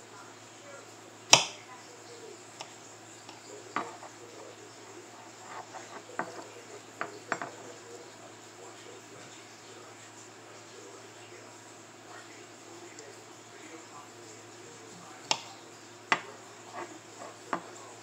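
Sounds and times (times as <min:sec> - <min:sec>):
faint steady hiss: 0:00.0 - 0:18.0.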